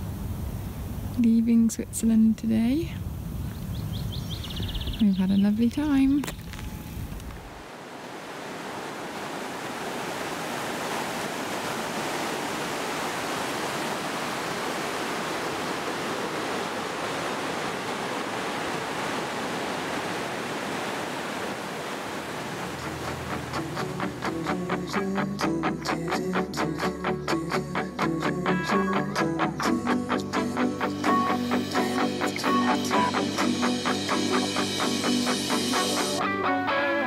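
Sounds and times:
rushing stream water: 7.4s - 25.9s
guitar music: 22.7s - 37.0s.

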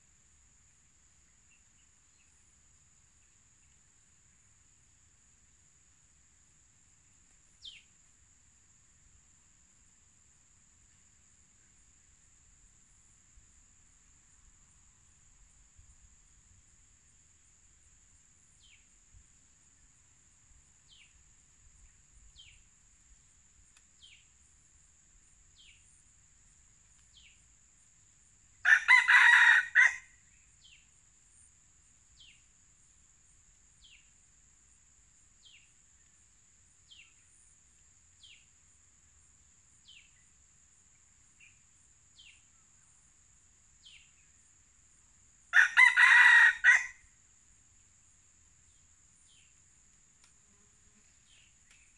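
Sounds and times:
rooster crowing: 28.6s - 30.2s, 45.5s - 47.0s.

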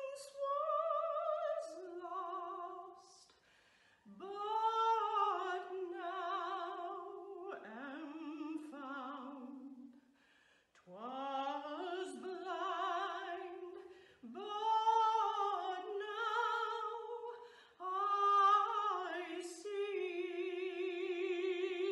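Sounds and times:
woman singing unaccompanied: 0.0s - 3.3s, 4.1s - 9.9s, 10.9s - 21.9s.

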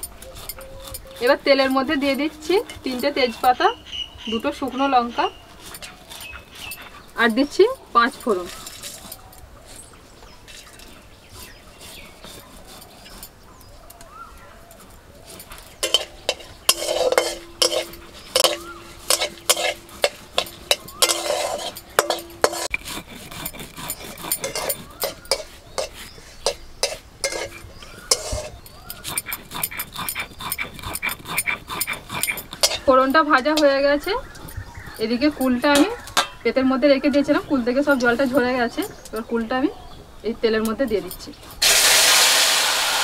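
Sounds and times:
spatula scraping metal pan: 0.0s - 9.2s, 10.5s - 13.4s, 15.3s - 38.9s
spices sizzling in oil: 15.3s - 22.8s, 24.4s - 29.1s, 41.6s - 43.0s.

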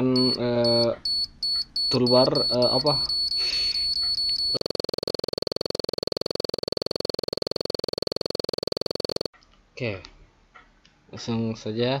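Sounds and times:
short electronic beeps: 0.2s - 9.3s.

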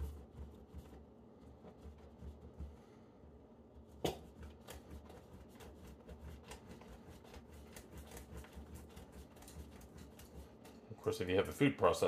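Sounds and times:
cheese rasping on grater: 3.9s - 10.9s.

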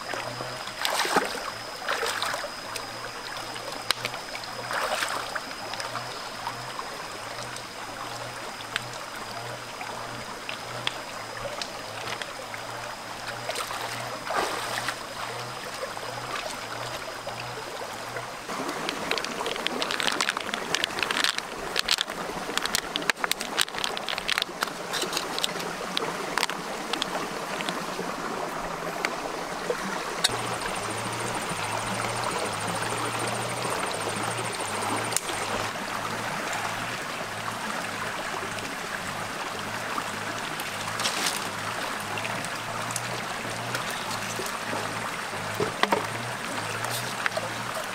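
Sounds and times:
steady high-pitched tone: 0.0s - 21.6s, 30.2s - 37.3s
stream running over rocks: 0.0s - 47.9s.

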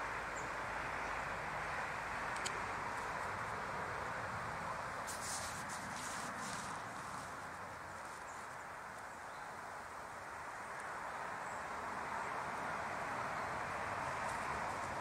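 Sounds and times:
outdoor ambience hiss: 0.0s - 15.0s.

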